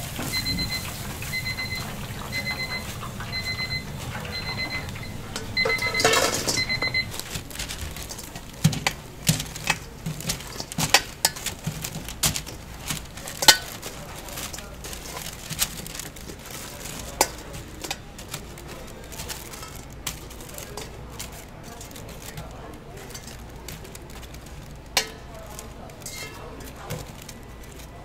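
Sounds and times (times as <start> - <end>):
electronic timer beeping: 0.3 - 7.2
sharp knocks and clatter: 5.4 - 27.3.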